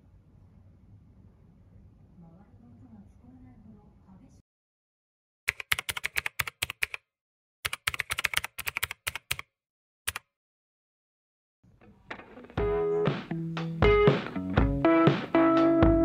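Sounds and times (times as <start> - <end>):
keyboard key clicks: 5.5 - 7.0, 7.7 - 9.5
music: 11.8 - 16.0.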